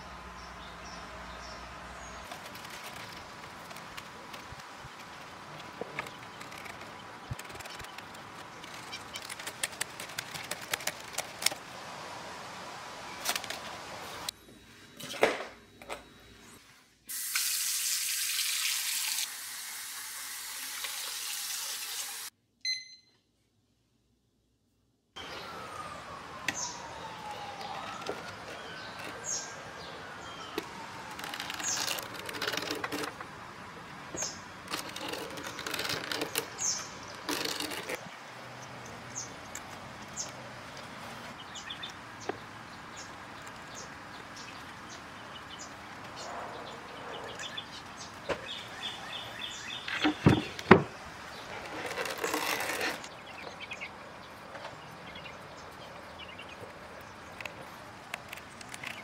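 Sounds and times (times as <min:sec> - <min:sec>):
birds chirping: 0:00.0 - 0:11.5, 0:25.2 - 0:59.0
rustling and scraping of cane: 0:02.0 - 0:11.6, 0:27.4 - 0:33.3, 0:34.2 - 0:38.1, 0:51.4 - 0:53.6.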